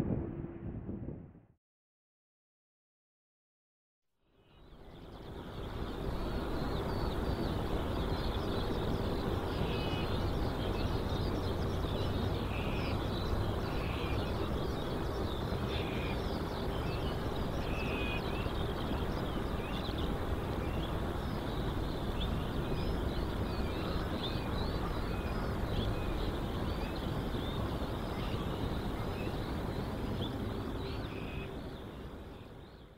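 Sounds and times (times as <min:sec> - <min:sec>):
steady low rumble: 0:00.0 - 0:01.6
small birds chirping: 0:04.5 - 0:32.9.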